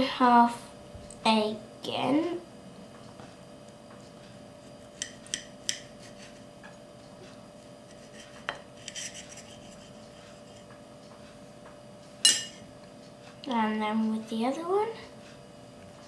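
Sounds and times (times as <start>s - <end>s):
knife scraping plate: 4.6s - 6.5s, 7.6s - 10.7s
knife clicking on plate: 5.0s - 5.9s.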